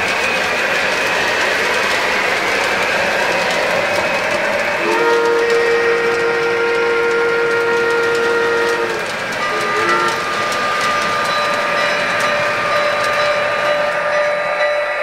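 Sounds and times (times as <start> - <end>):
model train rolling rumble: 0.0 - 15.0
model train whistle: 4.8 - 11.0.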